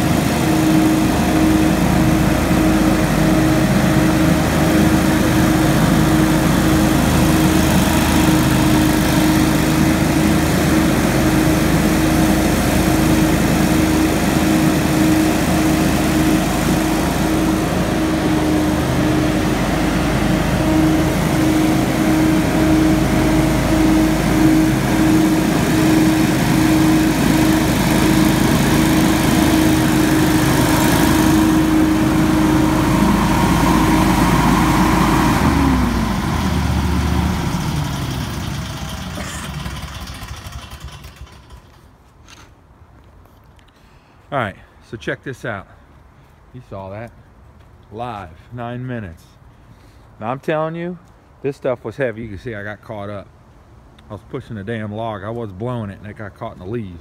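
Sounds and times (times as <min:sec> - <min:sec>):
leaf blower running: 0:00.0 - 0:42.4.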